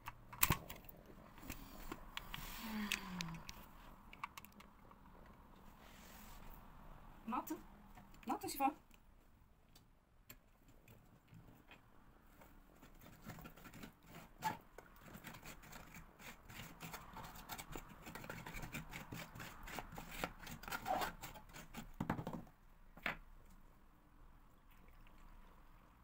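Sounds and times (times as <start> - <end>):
metal utensil scraping a plastic tub: 12.9 - 21.9.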